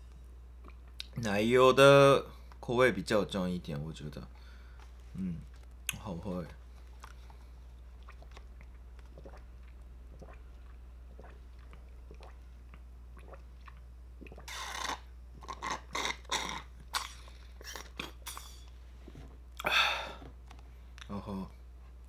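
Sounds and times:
slurping through a straw: 13.2s - 18.4s.

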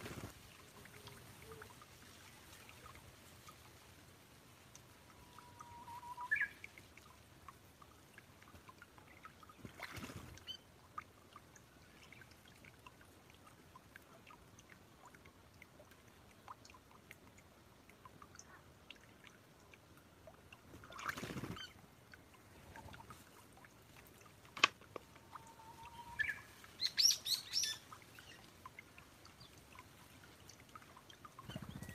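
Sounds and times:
bird wings flapping: 0.0s - 0.5s, 9.7s - 10.4s, 21.0s - 21.7s, 31.5s - 31.9s
water trickling and dripping: 0.0s - 31.9s.

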